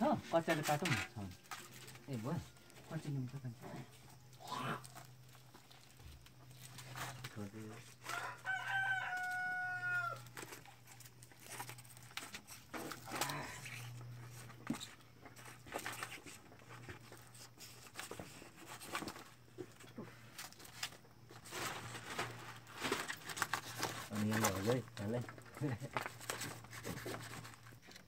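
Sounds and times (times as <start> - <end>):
faint clicks and rustles: 0.4 - 9.4, 10.0 - 28.0
rooster crowing: 8.0 - 10.4.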